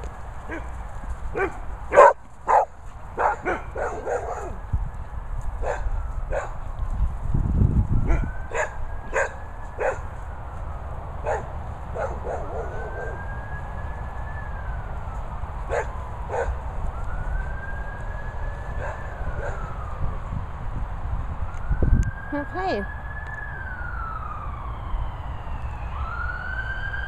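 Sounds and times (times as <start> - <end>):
emergency siren wailing: 0.1 - 27.0
dog barking: 1.3 - 4.6, 5.6 - 6.6, 8.1 - 10.1, 11.2 - 12.8, 15.7 - 16.6.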